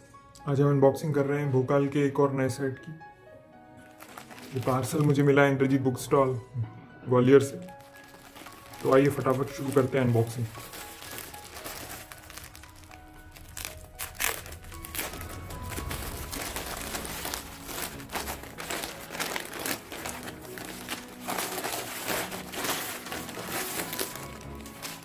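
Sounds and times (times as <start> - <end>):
soft background music: 0.0 - 25.0
plastic mailer bag crinkling: 3.8 - 5.3, 7.7 - 25.0.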